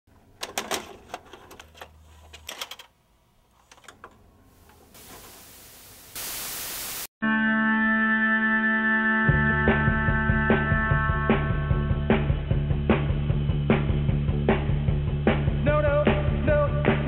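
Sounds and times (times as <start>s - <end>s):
television static hiss: 5.0s - 7.1s.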